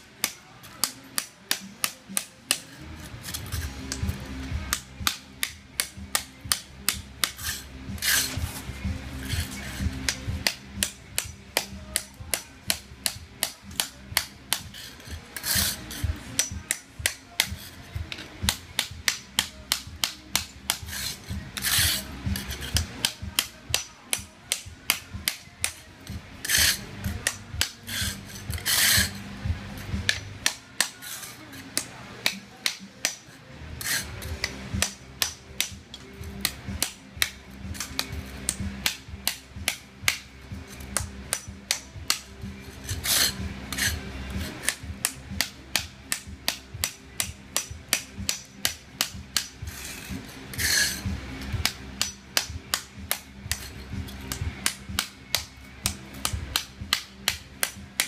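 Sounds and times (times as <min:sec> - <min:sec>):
hammer striking chisel on tile: 0:00.2 - 0:08.4, 0:09.2 - 0:29.2, 0:29.8 - 0:58.0
chisel scraping tile: 0:02.5 - 0:04.1, 0:07.2 - 0:08.6, 0:09.2 - 0:10.9, 0:12.7 - 0:23.8, 0:24.5 - 0:29.2, 0:29.8 - 0:39.4, 0:40.1 - 0:44.8, 0:49.0 - 0:55.1.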